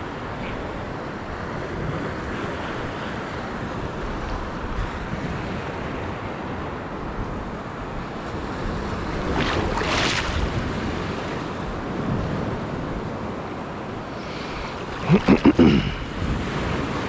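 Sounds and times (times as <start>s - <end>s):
shallow surf water moving: 0.0s - 17.0s
water splash: 9.3s - 10.5s.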